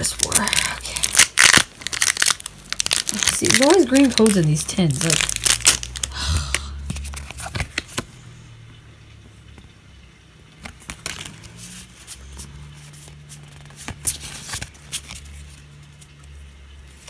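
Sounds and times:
foil wrapper crinkling: 0.0 - 6.2, 10.6 - 16.1.

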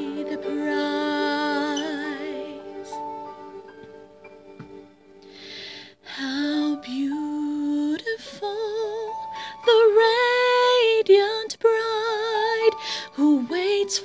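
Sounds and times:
woman singing: 0.0 - 3.1, 6.1 - 14.0
singer breath: 5.2 - 6.0.

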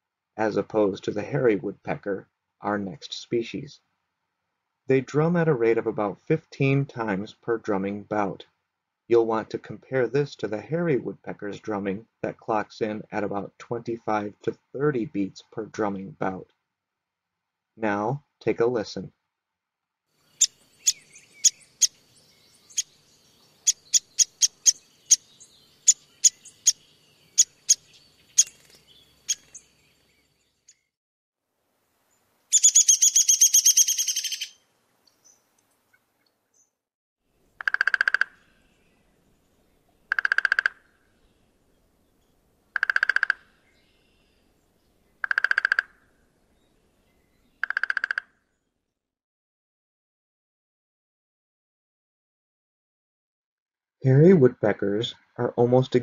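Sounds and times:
woodpecker rattling whinny call: 20.3 - 22.0, 23.6 - 29.7, 32.5 - 34.6, 37.6 - 38.6, 40.1 - 41.0, 42.7 - 43.6, 45.2 - 46.1, 47.6 - 48.4
woodpecker pick call notes: 20.4 - 22.0, 23.6 - 26.8, 32.5 - 34.6, 37.6 - 38.4, 40.1 - 40.9, 42.8 - 43.5, 45.2 - 46.0, 47.6 - 48.3
woodpecker drumming: 20.4 - 22.1, 22.7 - 29.7, 32.5 - 34.6, 37.6 - 38.5, 40.1 - 40.9, 42.7 - 43.6, 45.2 - 46.0, 47.6 - 48.3.

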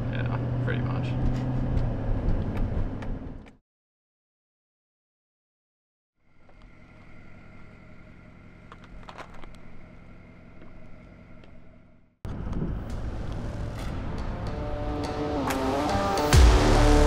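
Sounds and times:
idling vehicle engines hum: 0.0 - 3.5, 6.2 - 15.9.

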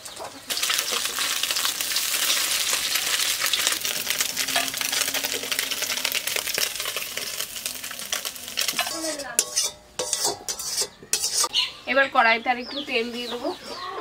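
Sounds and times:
fish sizzling in hot oil: 0.5 - 11.5
utensil clinking against pan: 8.1 - 11.5.

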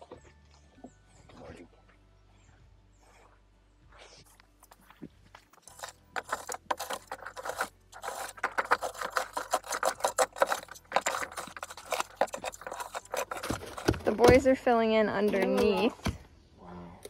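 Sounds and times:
metal bar scraping gritty soil: 4.1 - 16.2.

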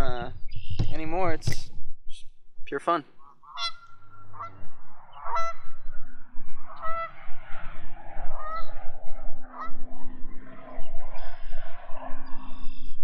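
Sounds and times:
geese honking: 3.2 - 8.8, 9.5 - 9.9.

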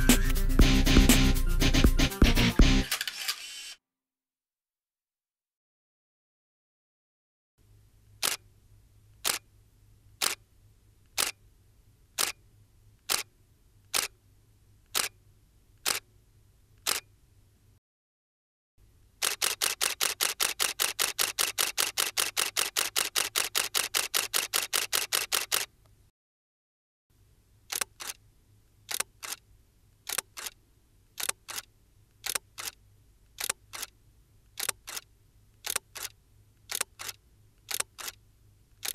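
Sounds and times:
camera shutter clicks: 2.8 - 3.8, 8.2 - 8.4, 9.2 - 9.4, 10.2 - 10.4, 11.2 - 11.4, 13.1 - 13.3, 14.9 - 15.1, 15.8 - 16.0, 16.8 - 17.1, 19.2 - 25.7, 28.9 - 29.4, 30.1 - 30.6, 31.2 - 32.8, 33.4 - 33.9, 34.6 - 35.0, 35.6 - 36.1, 36.7 - 38.2.

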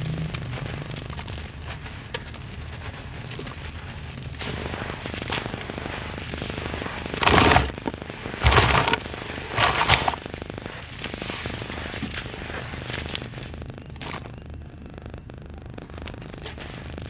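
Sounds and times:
wet mud crackle: 0.2 - 10.3.

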